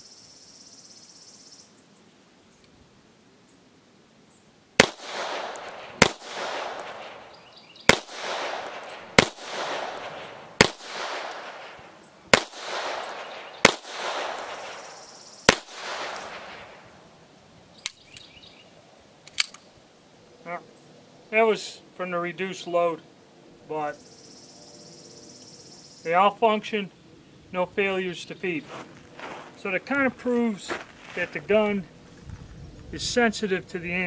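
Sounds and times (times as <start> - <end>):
pistol shots with echo: 4.8 - 16.8
light metallic clicks: 19.2 - 19.7.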